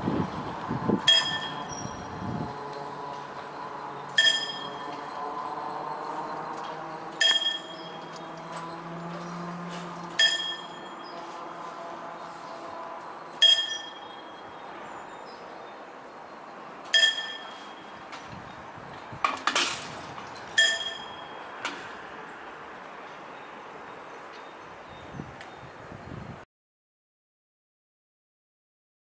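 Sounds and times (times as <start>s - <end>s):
level-crossing bell dings: 1.1s - 2.2s, 3.1s - 8.8s, 10.2s - 11.3s, 13.1s - 15.4s, 16.9s - 18.1s, 20.6s - 21.6s.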